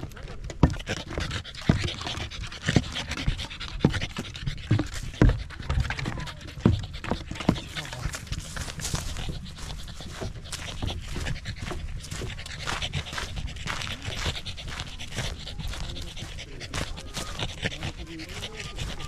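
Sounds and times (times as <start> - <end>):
dog panting rapidly: 0.0 - 19.0.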